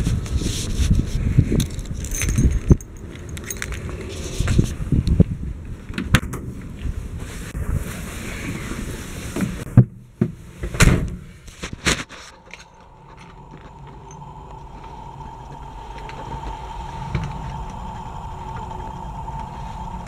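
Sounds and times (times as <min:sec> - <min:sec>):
low hum: 0:12.0 - 0:20.0
thin high whine: 0:12.0 - 0:20.0.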